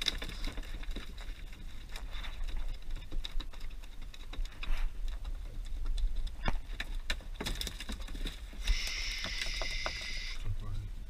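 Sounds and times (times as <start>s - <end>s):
low steady rumble: 10.3s - 11.0s.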